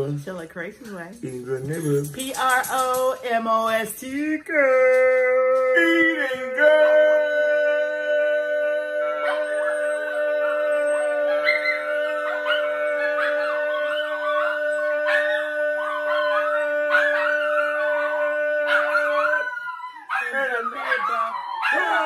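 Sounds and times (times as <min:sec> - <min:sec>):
dog howling: 0:05.8 - 0:22.0.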